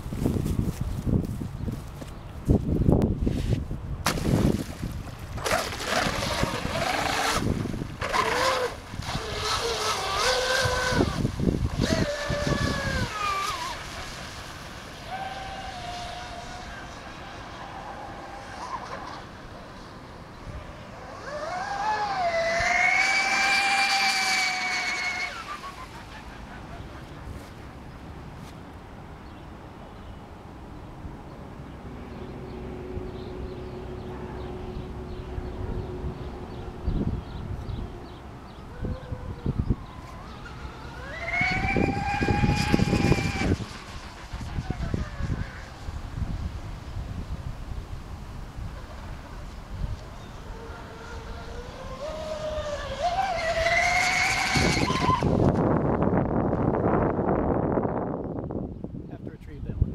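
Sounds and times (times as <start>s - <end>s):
wind buffeting microphone: 0.0s - 19.4s, 30.5s - 59.9s
model boat motor whining: 5.4s - 27.5s, 32.5s - 46.4s, 48.4s - 55.9s.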